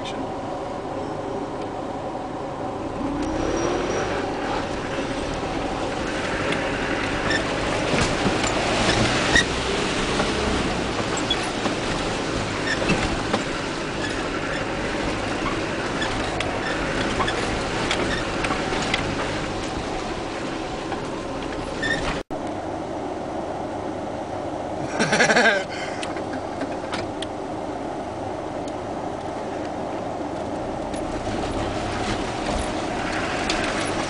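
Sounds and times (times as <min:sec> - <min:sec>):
diesel engine under load: 0:00.0 - 0:34.0
car body rattling over bumps: 0:04.2 - 0:22.3, 0:30.5 - 0:34.0.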